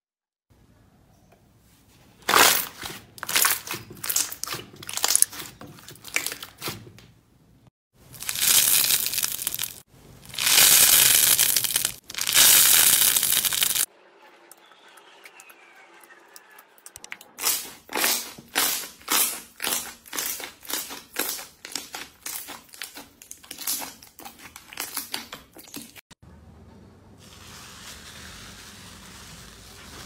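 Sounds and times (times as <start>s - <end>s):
crunchy slime crackling: 2.2s - 6.7s, 8.0s - 13.9s, 17.4s - 25.8s
slime crunching when stretched: 2.2s - 6.7s, 8.1s - 13.9s, 17.4s - 25.2s
soft squishing: 17.4s - 26.0s.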